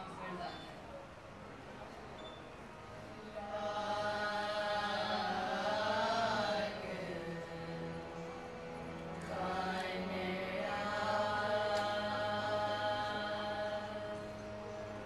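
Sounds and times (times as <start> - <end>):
harmoniums: 0.0 - 15.0
girls singing in unison: 3.2 - 14.6.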